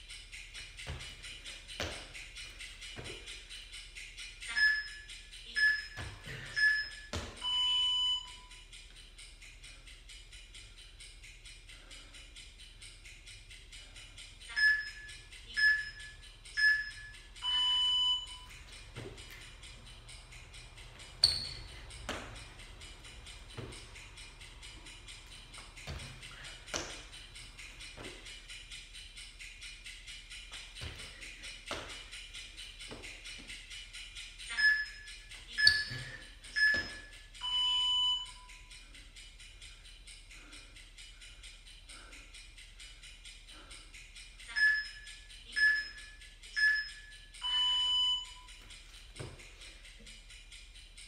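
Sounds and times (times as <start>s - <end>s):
background music with steady beat: 0.0s - 51.0s
timer beeps: 1.0s - 9.6s, 13.7s - 28.6s, 30.3s - 38.8s, 44.4s - 48.8s
short timer beeps: 4.4s - 8.6s, 14.5s - 18.6s, 34.5s - 38.6s, 44.5s - 48.5s
longer lower beep: 5.6s - 8.5s, 14.6s - 18.4s, 35.6s - 38.5s.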